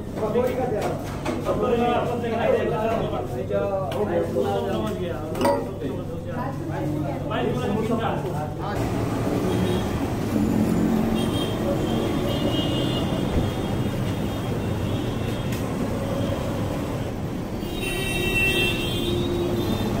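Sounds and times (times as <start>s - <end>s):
road traffic noise: 8.4s - 20.0s.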